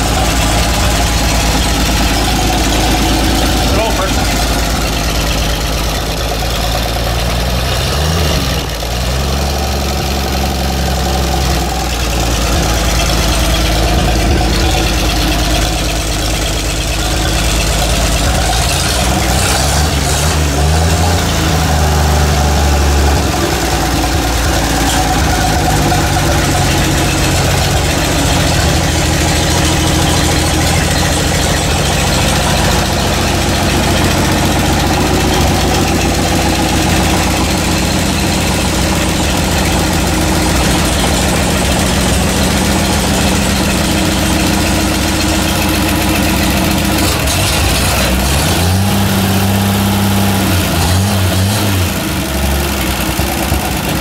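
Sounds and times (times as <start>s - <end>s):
car engine revving and idling: 0.0s - 54.0s.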